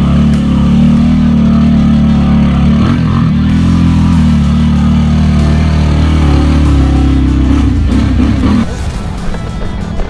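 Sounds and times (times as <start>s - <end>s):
atv engine running: 0.0s - 9.3s.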